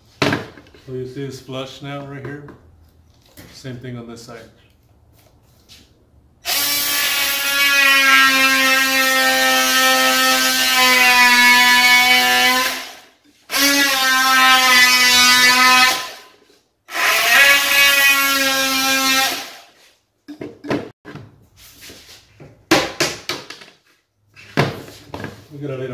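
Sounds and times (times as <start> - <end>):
oscillating multi-tool cutting wood: 16.9 - 19.7.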